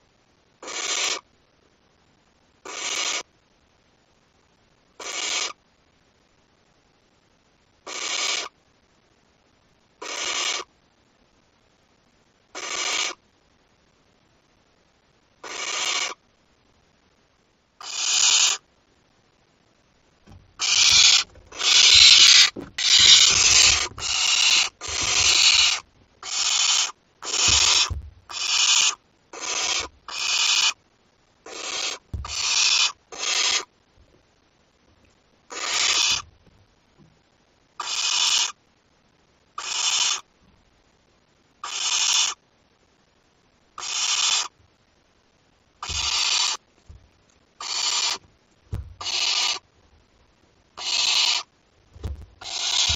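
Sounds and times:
owl chicks hissing: 0:00.6 - 0:01.2, 0:02.6 - 0:03.3, 0:05.0 - 0:05.6, 0:07.9 - 0:08.6, 0:10.0 - 0:10.7, 0:12.6 - 0:13.2, 0:15.4 - 0:16.2, 0:17.8 - 0:18.6, 0:20.6 - 0:30.8, 0:31.4 - 0:33.7, 0:35.5 - 0:36.3, 0:37.8 - 0:38.6, 0:39.6 - 0:40.3, 0:41.6 - 0:42.4, 0:43.8 - 0:44.6, 0:45.8 - 0:46.6, 0:47.6 - 0:48.2, 0:49.0 - 0:49.7, 0:50.8 - 0:51.5, 0:52.4 - 0:52.9.

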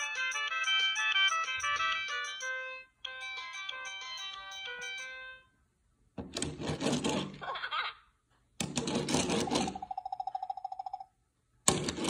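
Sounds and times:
rapidly pulsing beep: 0:00.0 - 0:05.3.

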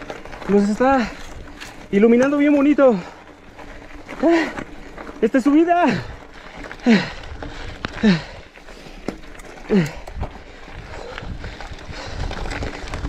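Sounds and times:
bike ticking on trail: 0:00.0 - 0:13.0
person groaning with effort: 0:04.2 - 0:04.6, 0:08.0 - 0:08.5, 0:09.7 - 0:10.1.

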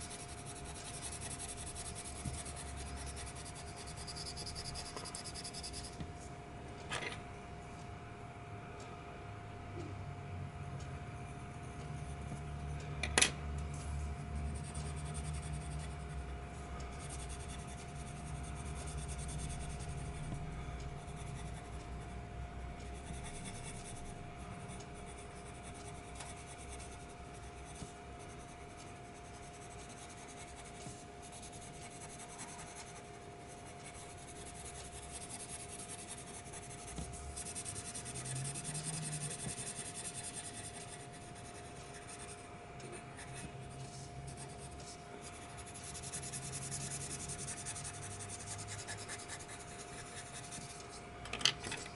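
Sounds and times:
pencil scratching on paper: 0:00.0 - 0:06.0, 0:14.4 - 0:16.2, 0:17.0 - 0:20.4, 0:21.0 - 0:22.0, 0:23.0 - 0:51.0.

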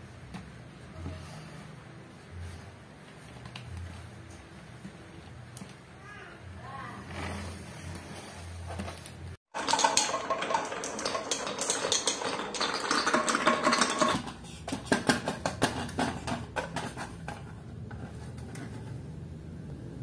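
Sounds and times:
marbles clattering on wooden track: 0:09.5 - 0:17.4.

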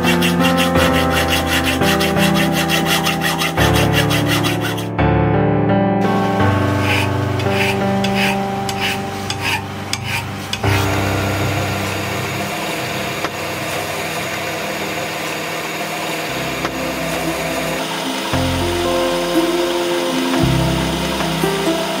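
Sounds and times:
drill press cutting metal: 0:00.0 - 0:04.9, 0:06.2 - 0:22.0
hand file scraping metal: 0:00.0 - 0:04.9, 0:06.8 - 0:10.9.

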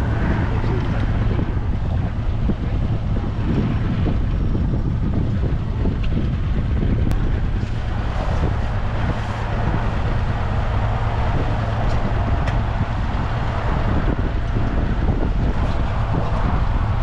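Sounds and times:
wind on microphone: 0:00.0 - 0:17.0.

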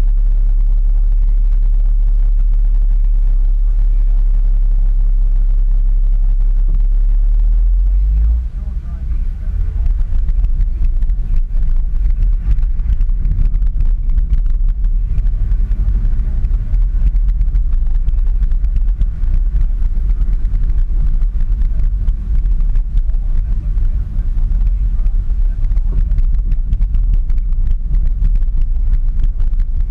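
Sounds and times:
car engine and tyres rumbling: 0:00.0 - 0:29.9
car interior clicks and rattles: 0:08.2 - 0:29.9.

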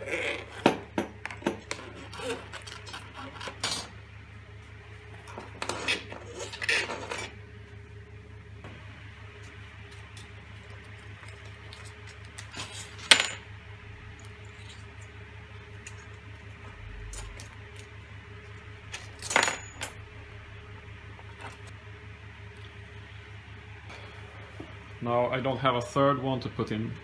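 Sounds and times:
faint steady hum: 0:00.0 - 0:27.0
metal washers clinking: 0:18.9 - 0:20.0.

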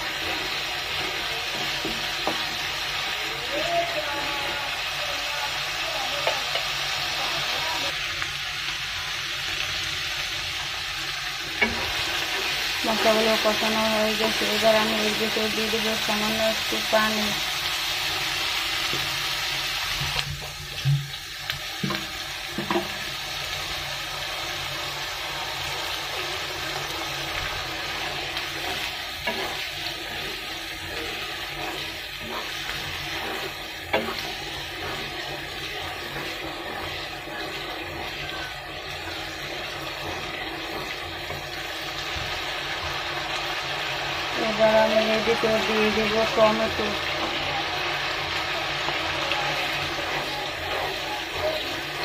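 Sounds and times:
water hissing in hot wok: 0:00.0 - 0:52.0.

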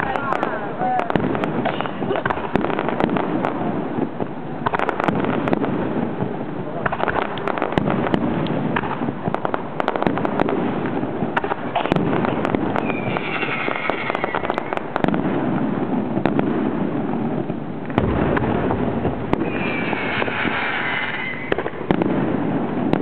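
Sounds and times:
fireworks bursting and crackling: 0:00.0 - 0:23.0
falling firework whistle: 0:01.6 - 0:02.3, 0:11.8 - 0:14.9, 0:19.3 - 0:21.8.

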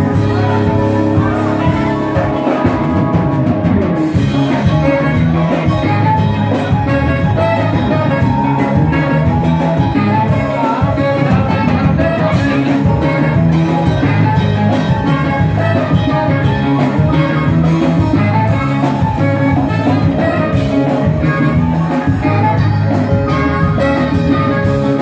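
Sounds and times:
man singing: 0:00.0 - 0:03.4, 0:04.4 - 0:18.9
drum kit: 0:00.0 - 0:25.0
live band music: 0:00.0 - 0:25.0
saxophone: 0:00.0 - 0:25.0.

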